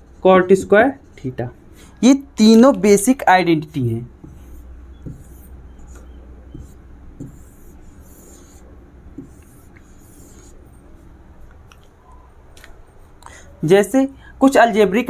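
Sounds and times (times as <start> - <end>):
marker scratching on whiteboard: 0.0 - 11.7.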